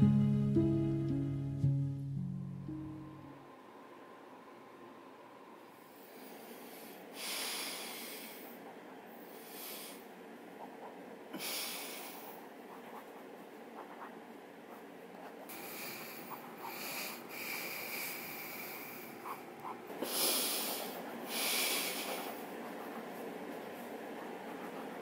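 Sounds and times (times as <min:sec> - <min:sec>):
person breathing hard through nose: 0:05.9 - 0:10.1, 0:11.3 - 0:12.5, 0:15.5 - 0:19.2, 0:20.0 - 0:23.2
pen scratching on paper: 0:12.7 - 0:15.6, 0:21.9 - 0:25.0.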